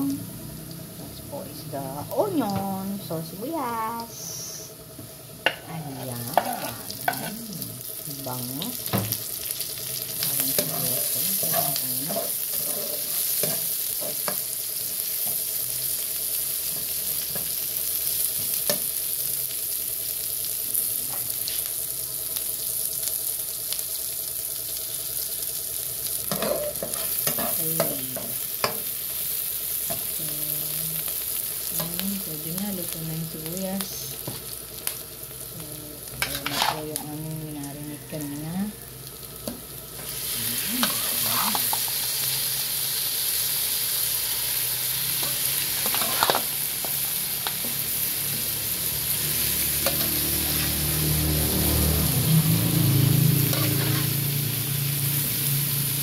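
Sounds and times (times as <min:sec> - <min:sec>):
onion and garlic sizzling in oil: 0:00.0 - 0:56.0
spatula scraping pan: 0:05.5 - 0:07.4, 0:10.4 - 0:14.4, 0:26.3 - 0:28.8, 0:36.2 - 0:36.9, 0:40.7 - 0:41.9, 0:45.2 - 0:47.8, 0:53.5 - 0:54.2.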